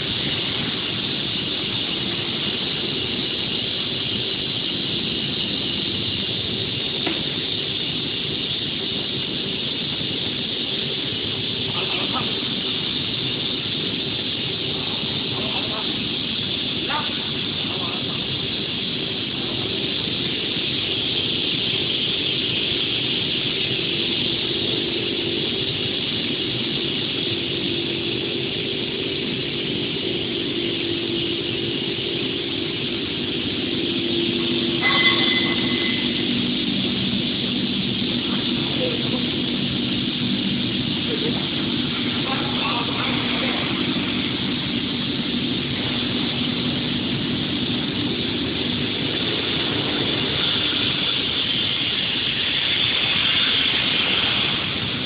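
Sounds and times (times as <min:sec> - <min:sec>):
machine motor hum: 0:00.0 - 0:55.0
high squeal: 0:34.0 - 0:37.3.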